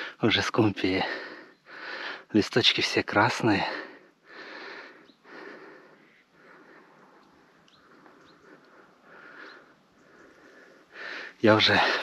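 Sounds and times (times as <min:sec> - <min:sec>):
person breathing hard: 0:01.1 - 0:02.3, 0:03.7 - 0:11.4
faint bird chirps: 0:04.8 - 0:05.3, 0:05.9 - 0:10.9.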